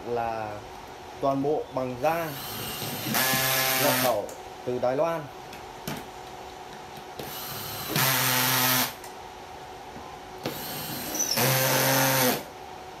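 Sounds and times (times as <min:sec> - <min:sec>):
cordless drill driving screws: 0:02.3 - 0:04.2, 0:07.2 - 0:09.0, 0:10.4 - 0:12.5.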